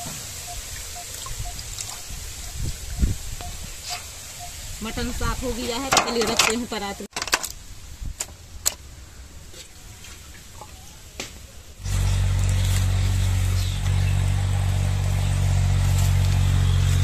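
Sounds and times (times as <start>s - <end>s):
low engine drone: 11.8s - 17.0s.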